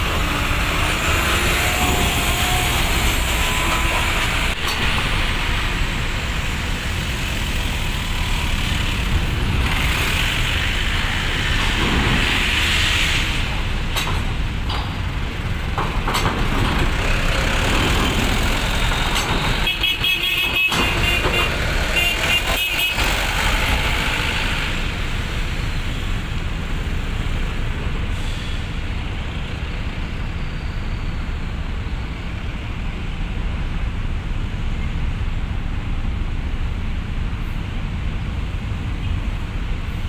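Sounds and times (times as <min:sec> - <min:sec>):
truck engine passing: 0:00.0 - 0:13.9, 0:20.9 - 0:28.8
bus engine idling: 0:01.9 - 0:11.5, 0:13.4 - 0:40.0.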